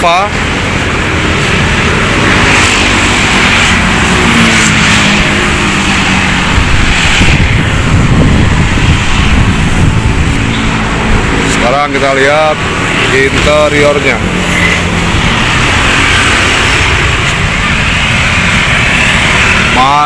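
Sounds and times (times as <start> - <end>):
road traffic rumbling: 0.0 - 20.0.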